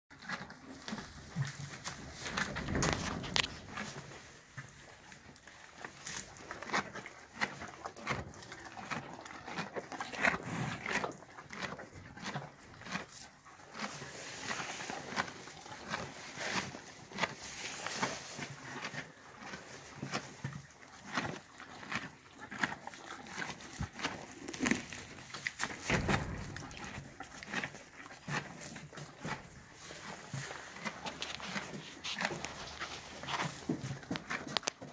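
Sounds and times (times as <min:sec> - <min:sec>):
horse chewing hay: 0:00.1 - 0:34.9.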